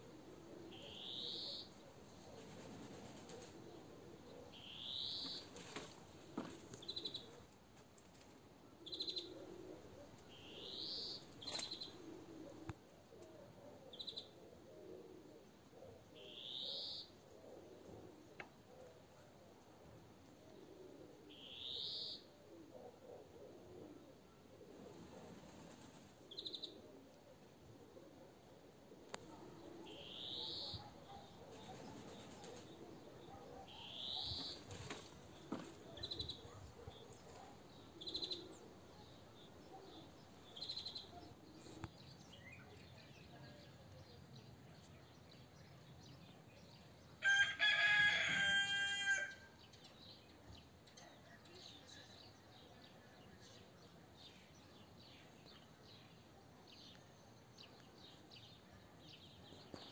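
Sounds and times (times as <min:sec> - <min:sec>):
small birds chirping: 0:29.1 - 0:47.0
rooster crowing: 0:47.2 - 0:49.5.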